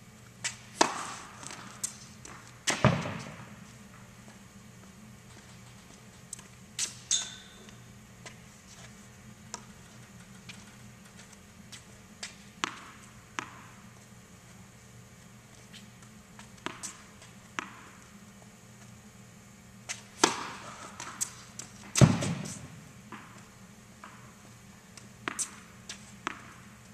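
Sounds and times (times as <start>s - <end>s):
racket hitting tennis ball: 0.4s - 3.6s, 12.2s - 14.0s, 16.4s - 18.0s, 19.9s - 24.4s, 25.2s - 26.8s
tennis ball bouncing on court: 0.4s - 3.6s, 12.2s - 14.0s, 16.0s - 18.2s, 19.9s - 26.8s.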